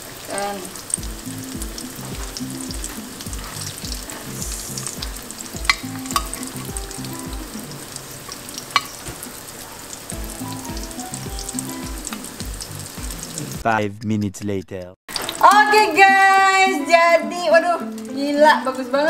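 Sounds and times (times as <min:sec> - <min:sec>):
food deep-frying in oil: 0:00.0 - 0:13.6, 0:15.1 - 0:17.2
soft background music: 0:00.8 - 0:13.6, 0:15.2 - 0:19.0
metal tongs clicking on pan: 0:05.6 - 0:06.8, 0:08.2 - 0:09.0.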